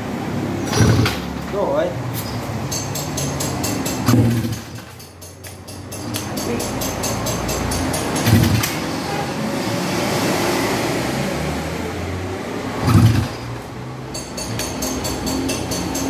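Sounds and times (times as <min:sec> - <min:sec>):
motorcycle engine revving: 0:00.4 - 0:01.5, 0:04.0 - 0:05.0, 0:07.9 - 0:13.9.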